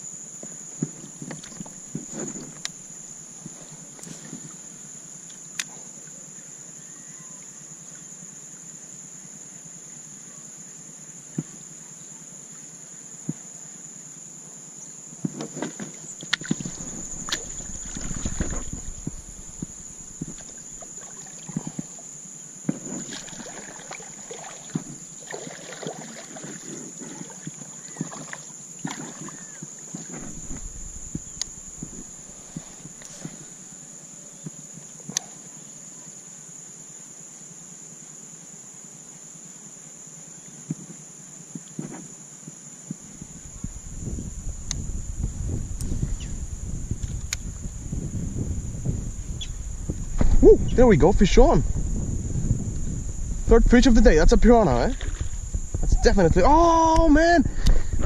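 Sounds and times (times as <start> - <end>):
paddle knocking on plastic hull: 15.3 - 21.9
paddle splashing in water: 15.3 - 22.0, 22.6 - 33.4, 54.8 - 55.8.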